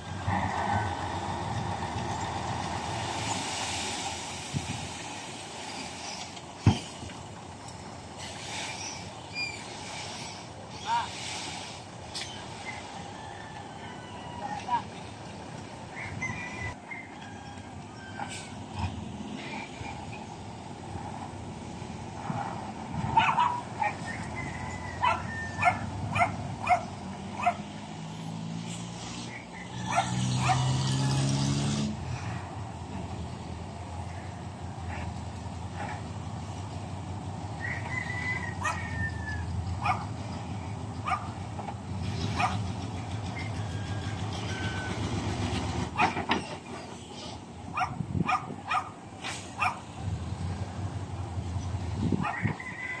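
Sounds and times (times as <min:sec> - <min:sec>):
truck engine running: 0:00.0 - 0:13.0, 0:29.3 - 0:52.5
dog barking: 0:23.1 - 0:24.0, 0:25.0 - 0:27.7, 0:29.9 - 0:30.7, 0:39.8 - 0:40.1, 0:41.0 - 0:41.3, 0:42.4 - 0:42.6, 0:47.7 - 0:48.9, 0:49.6 - 0:49.8.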